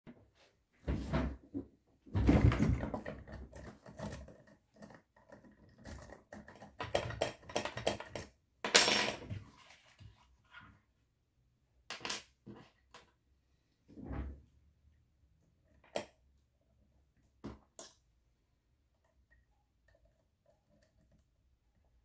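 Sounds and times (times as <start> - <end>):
lock picks clicking and scraping: 2.9 - 8.3.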